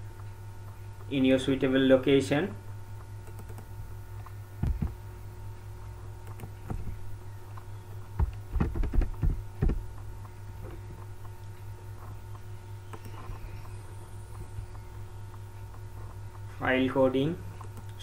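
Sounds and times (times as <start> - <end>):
electrical hum: 0.0 - 18.0
computer mouse clicks: 3.2 - 5.0, 6.2 - 6.8, 12.3 - 16.4, 17.6 - 18.0.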